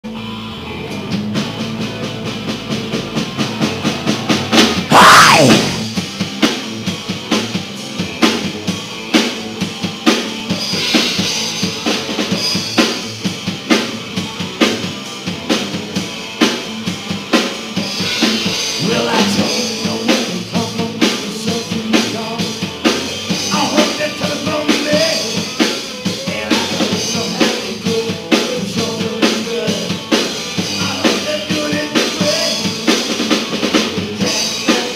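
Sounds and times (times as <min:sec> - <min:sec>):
live rock band: 0:00.0 - 0:34.9
drum fill and crash: 0:04.8 - 0:06.2.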